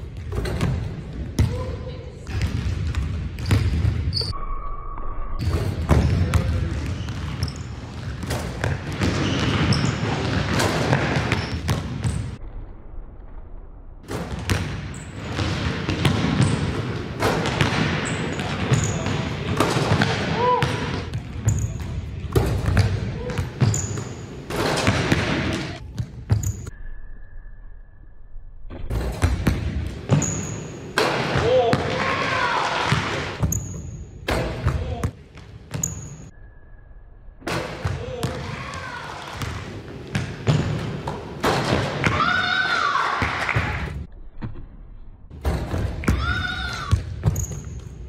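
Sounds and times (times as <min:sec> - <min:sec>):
basketballs bouncing on wooden floor: 0:00.0 - 0:04.1, 0:05.4 - 0:12.4, 0:14.1 - 0:26.6, 0:37.5 - 0:42.4, 0:45.4 - 0:47.9
basketball bouncing on hardwood floor: 0:15.3 - 0:16.7.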